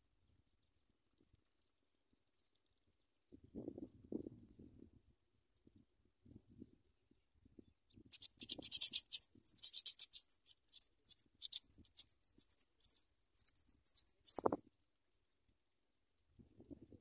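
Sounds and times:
nestlings chirping: 0:08.1 - 0:14.6.

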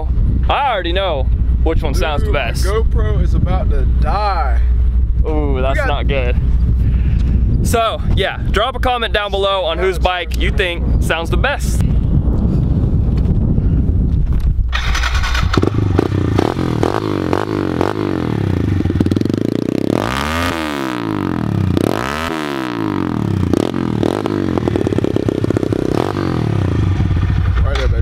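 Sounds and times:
motorcycle engine revving: 0:14.7 - 0:28.0.

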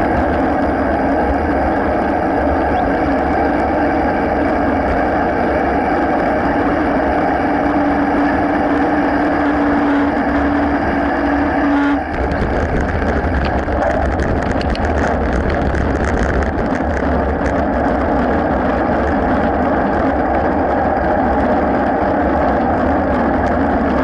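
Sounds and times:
steady hum: 0:00.0 - 0:24.0
wind and tyre noise: 0:00.0 - 0:24.0
bike rattling clicks: 0:12.1 - 0:20.8.

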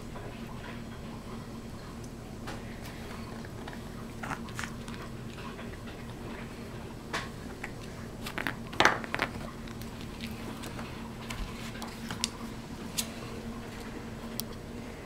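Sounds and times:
steady low hum: 0:00.0 - 0:15.0
puppy chewing: 0:02.8 - 0:06.8.

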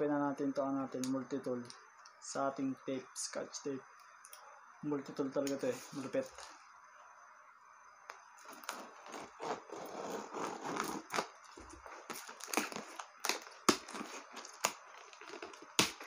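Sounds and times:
blade slitting tape on cardboard: 0:08.4 - 0:11.3.

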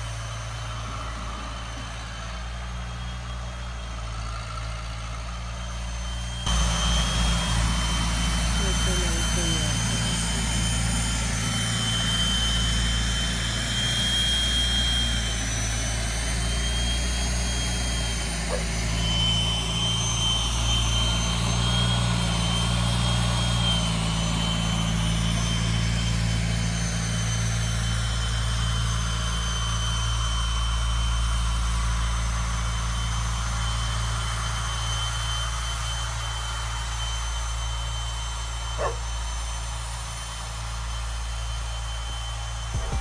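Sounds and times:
tractor engine running: 0:00.0 - 0:12.0, 0:41.0 - 0:43.0
high whine: 0:05.6 - 0:29.2, 0:36.2 - 0:43.0.

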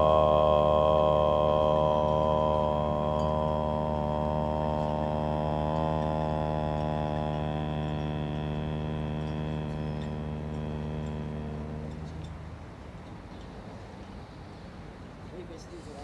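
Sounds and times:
group chanting om: 0:00.0 - 0:12.6
faint high ringing tone: 0:00.0 - 0:13.2.

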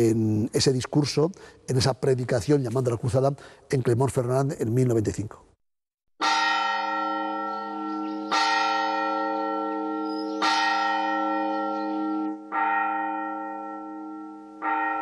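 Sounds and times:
church bell tolling slowly: 0:06.2 - 0:15.0.

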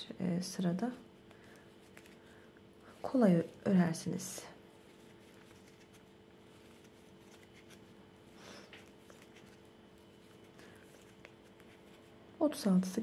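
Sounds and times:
faint steady hum: 0:00.0 - 0:13.0
yarn rustling with crochet hook: 0:02.9 - 0:08.0, 0:08.8 - 0:12.1.

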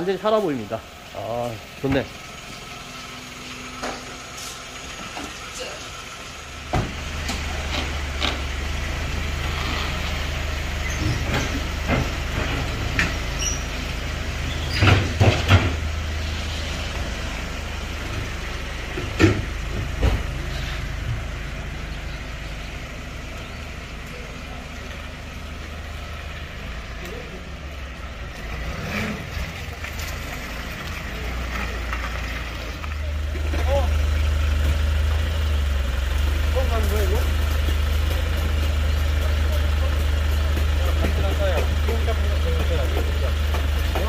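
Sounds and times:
truck engine low drone: 0:00.0 - 0:44.0
sharp knocks and clacks: 0:37.5 - 0:44.0.

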